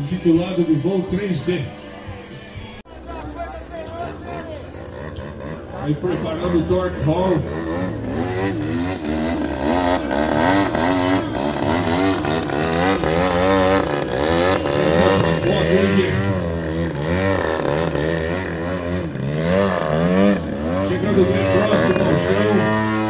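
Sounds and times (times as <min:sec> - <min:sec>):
model plane engine revving: 0:04.8 - 0:23.0.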